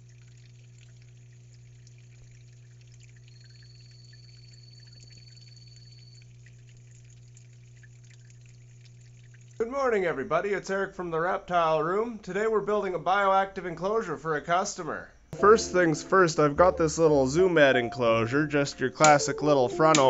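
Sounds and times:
water pump humming: 0.0 - 12.4, 15.4 - 20.0
faint trickling water: 0.0 - 13.9.

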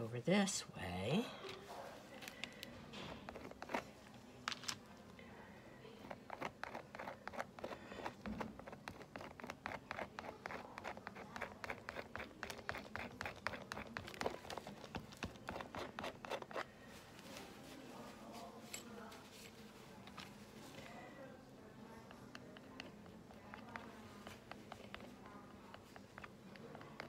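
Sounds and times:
palette knife scraping canvas: 6.1 - 16.7.

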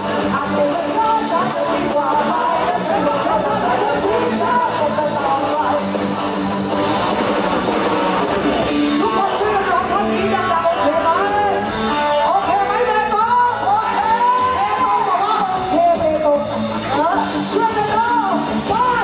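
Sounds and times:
woman singing into a microphone: 0.0 - 5.9, 8.8 - 19.0
drums: 0.0 - 19.0
electric guitar: 0.0 - 19.0.

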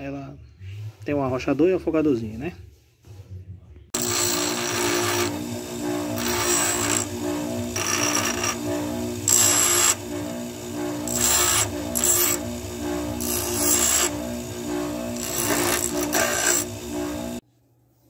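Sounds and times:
bench grinder humming: 4.0 - 17.4
wood rasping on grinding wheel: 4.0 - 17.4.

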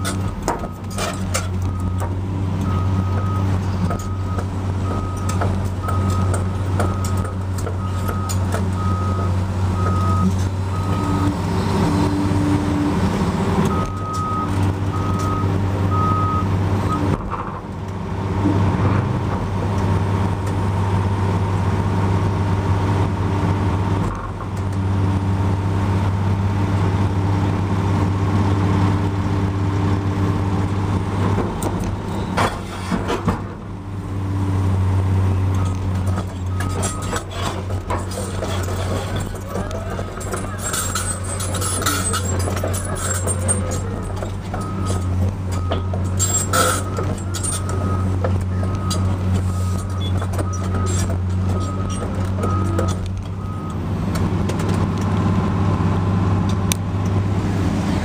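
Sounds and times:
excavator diesel engine under load: 0.0 - 58.0
reversing alarm beeping: 1.6 - 12.2, 13.7 - 17.1, 35.6 - 37.2, 39.9 - 53.8.

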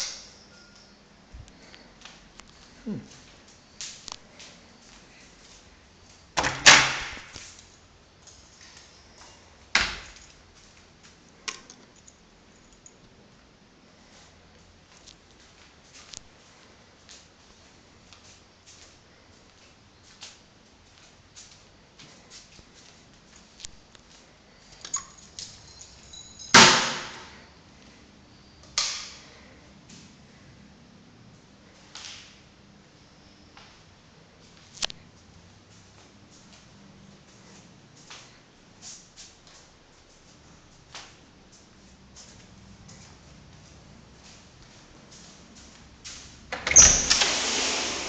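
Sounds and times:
wooden doors banging shut: 6.4 - 7.4.

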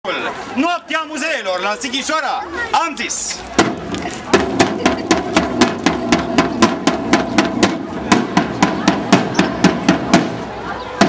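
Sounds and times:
marching snare drum beat: 3.6 - 10.5.

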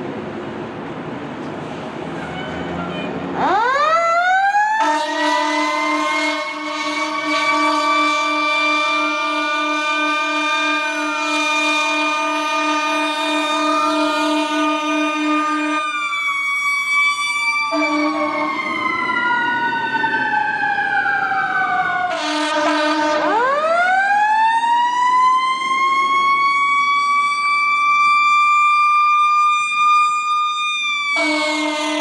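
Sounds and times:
fire truck air horns blasting: 2.1 - 3.8, 4.7 - 16.2, 17.5 - 19.1, 22.0 - 24.0, 31.1 - 32.0
siren wailing: 3.4 - 32.0.

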